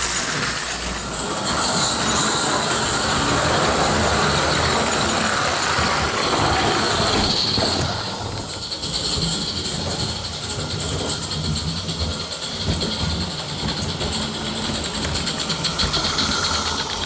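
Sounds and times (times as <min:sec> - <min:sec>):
toy steam locomotive hissing: 0:00.0 - 0:17.0.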